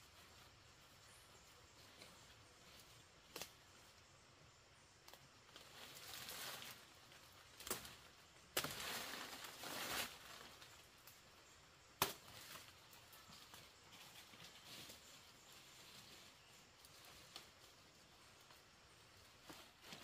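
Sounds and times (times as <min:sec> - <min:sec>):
rustling noise: 0:08.6 - 0:10.7.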